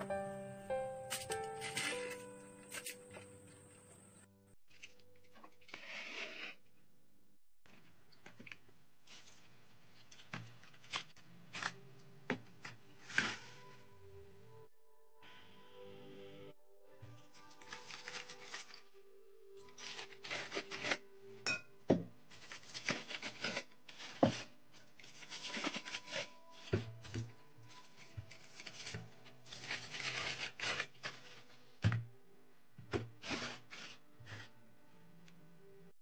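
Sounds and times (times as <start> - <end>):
aluminium foil crinkling and tearing: 17.4 - 18.9, 19.6 - 21.1, 22.3 - 26.7, 27.7 - 31.6.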